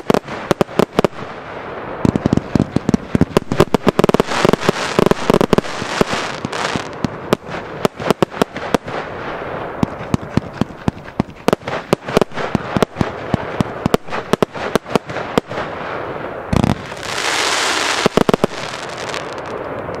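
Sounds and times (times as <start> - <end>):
crackling star bursts: 0.0 - 20.0
firework hiss: 0.0 - 20.0
fireworks cracking and banging: 0.0 - 20.0
loud firework bang: 16.5 - 17.1.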